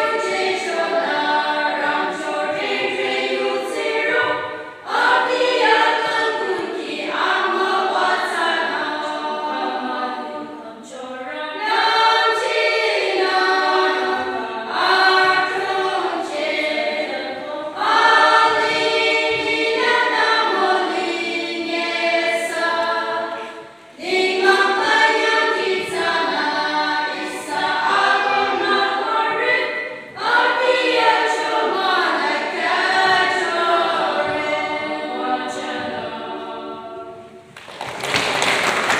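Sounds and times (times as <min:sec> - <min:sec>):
women's choir singing unaccompanied: 0:00.0 - 0:38.9.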